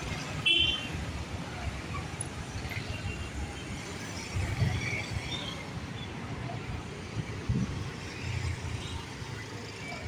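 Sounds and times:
road traffic rumble: 0.0s - 10.0s.

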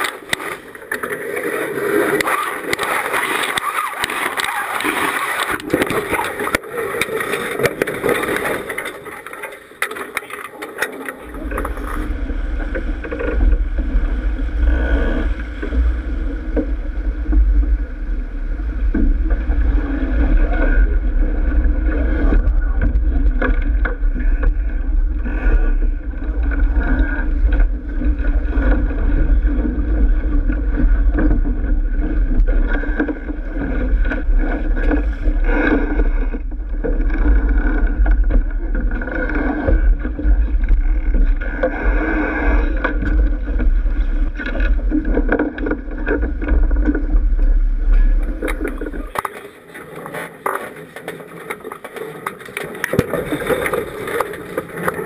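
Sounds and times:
water splashing along a hull: 0.0s - 55.0s
steady low rumble: 11.2s - 49.7s.

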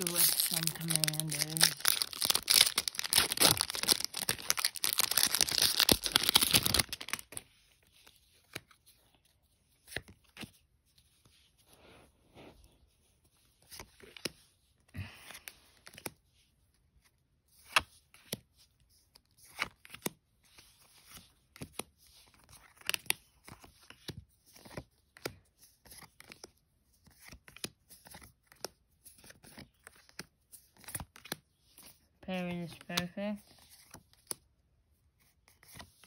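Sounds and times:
cards sliding and snapping together: 6.3s - 10.6s, 15.3s - 16.2s, 17.6s - 18.4s, 19.1s - 32.0s.

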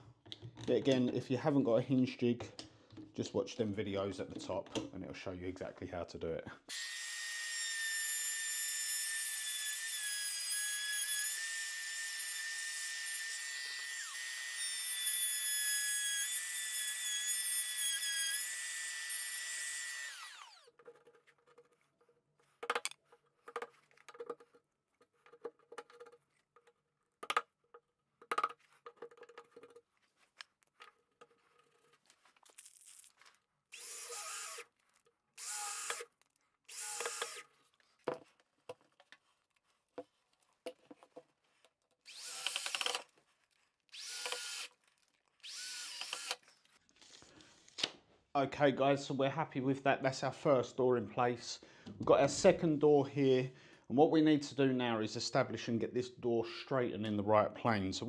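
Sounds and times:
cordless drill driving screws: 9.4s - 20.7s, 33.7s - 34.7s, 35.4s - 37.5s, 42.1s - 43.1s, 43.9s - 44.8s, 45.4s - 46.5s
trim router whining: 9.4s - 20.7s, 33.8s - 34.6s, 35.4s - 36.0s, 36.7s - 37.4s, 42.1s - 43.0s, 43.9s - 44.7s, 45.4s - 46.4s.

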